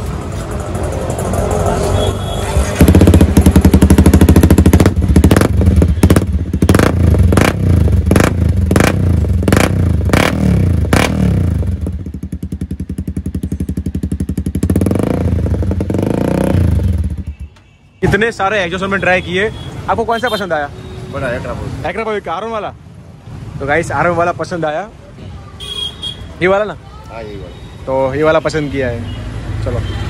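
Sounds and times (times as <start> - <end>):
motorcycle engine revving: 0.0 - 17.4
motorcycle engine idling: 2.6 - 17.5.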